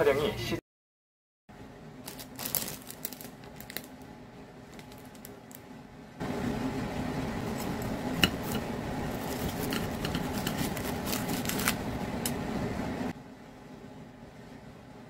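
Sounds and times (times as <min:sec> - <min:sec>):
steady hum: 0:01.5 - 0:15.0
pastry crust crackling: 0:02.1 - 0:05.7, 0:07.3 - 0:12.4.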